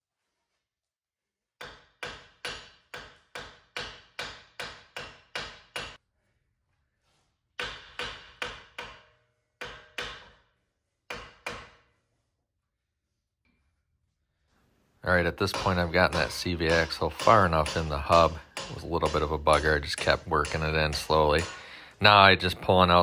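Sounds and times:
hammer striking metal axle: 1.6s - 6.0s, 7.6s - 10.5s, 15.4s - 21.7s.

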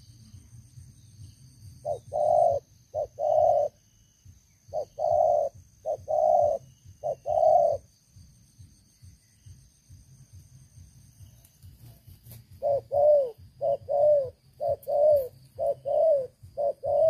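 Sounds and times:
dove cooing: 1.8s - 3.9s, 4.6s - 7.9s, 12.3s - 17.0s.

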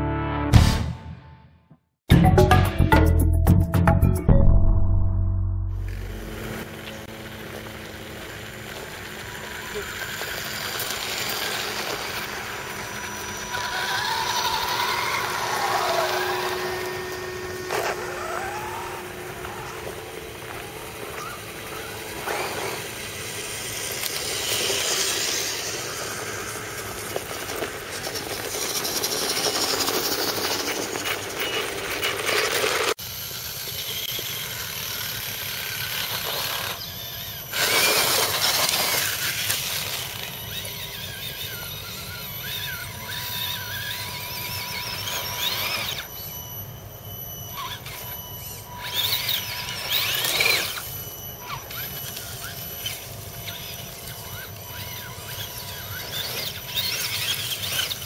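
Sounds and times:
electric toy truck motors whining: 5.8s - 58.0s
tyres rolling over gravel: 6.0s - 33.0s, 37.6s - 41.4s.

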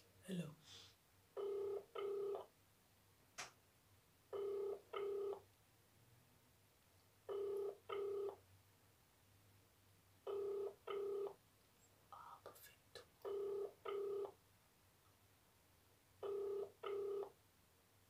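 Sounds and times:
telephone ringback tone: 1.4s - 2.5s, 4.3s - 5.4s, 7.3s - 8.4s, 10.3s - 11.4s, 13.3s - 14.4s, 16.2s - 17.4s.

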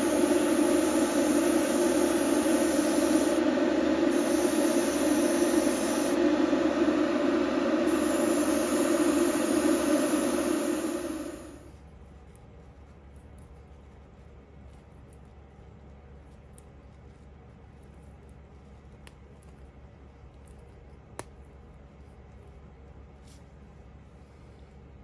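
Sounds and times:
steady machine noise: 0.0s - 11.7s.

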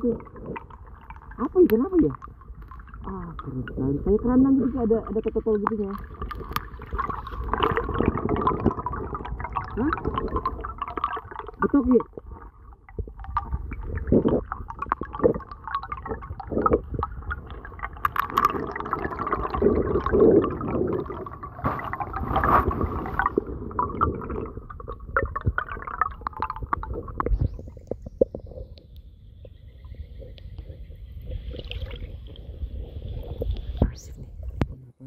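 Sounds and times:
underwater knocks and clicks: 0.0s - 32.5s
muffled underwater gurgling: 0.0s - 35.0s.

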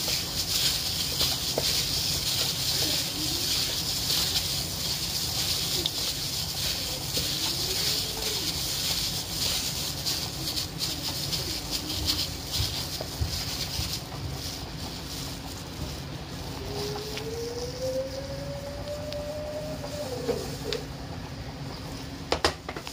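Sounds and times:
gloved hand squishing raw chicken: 0.0s - 17.5s
plastic crinkling: 0.0s - 21.0s
background hiss and rumble: 0.0s - 22.9s.

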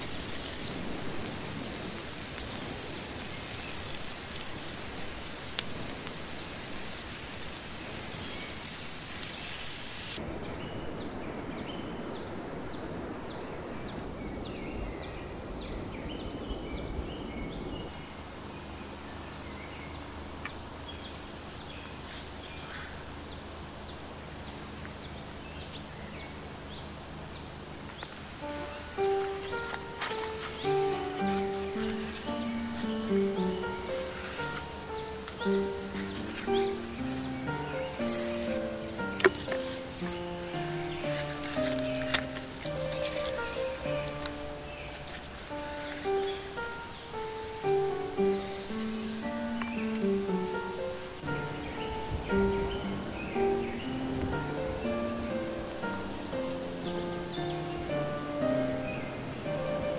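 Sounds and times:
food sizzling on hot stone: 0.0s - 10.2s, 27.8s - 58.8s
small birds chirping: 0.0s - 59.9s.

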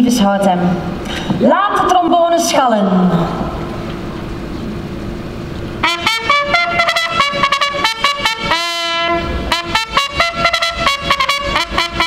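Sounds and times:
brass fanfare: 5.8s - 12.0s.

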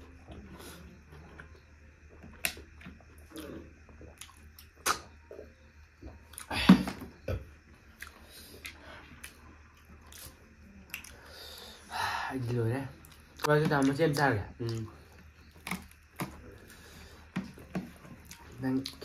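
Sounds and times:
chewing and mouth sounds: 2.3s - 5.1s, 7.9s - 11.3s, 14.6s - 19.0s.

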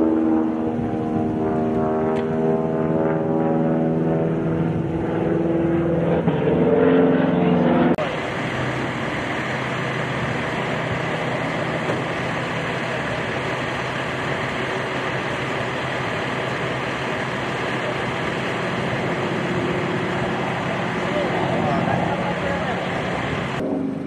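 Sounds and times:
propeller airplane engine drone: 0.0s - 24.0s.

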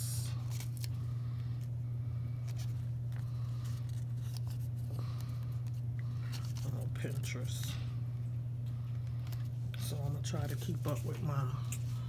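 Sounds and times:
low electrical hum: 0.0s - 12.0s
paper tape crinkling and peeling: 0.4s - 1.0s, 2.4s - 7.3s.

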